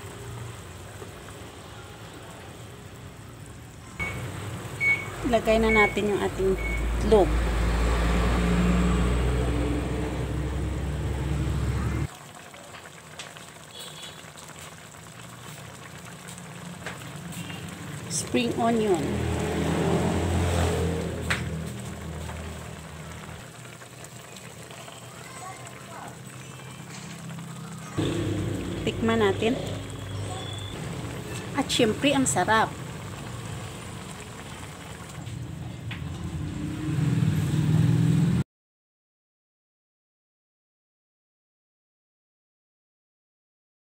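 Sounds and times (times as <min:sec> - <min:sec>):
broth bubbling at a boil: 0:00.0 - 0:08.8, 0:12.0 - 0:36.4
low motor hum: 0:04.0 - 0:12.1.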